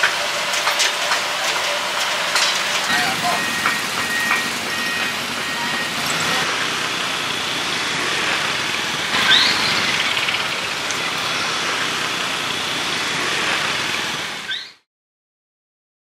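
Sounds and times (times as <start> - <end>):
scooter traffic hum: 1.8 - 14.6.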